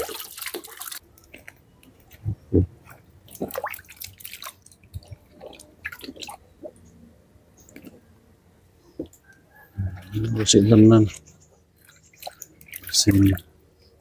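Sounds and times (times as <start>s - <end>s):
water splashes and drips: 0.0s - 2.1s, 3.2s - 6.8s, 11.8s - 13.5s
wet squishing of hands rubbing: 11.1s - 13.4s.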